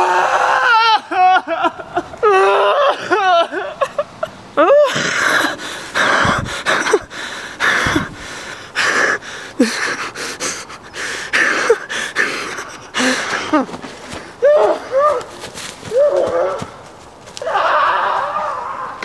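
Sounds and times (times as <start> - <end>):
man panting while running: 4.9 - 14.9.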